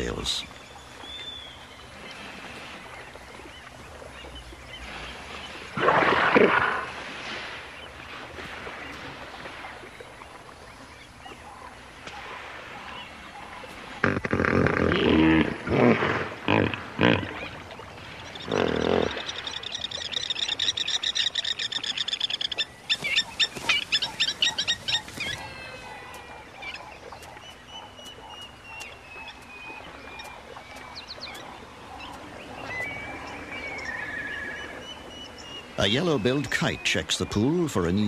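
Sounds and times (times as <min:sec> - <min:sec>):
plovers piping calls: 0:00.0 - 0:05.6, 0:17.0 - 0:38.0
thin bird calls: 0:17.2 - 0:37.7.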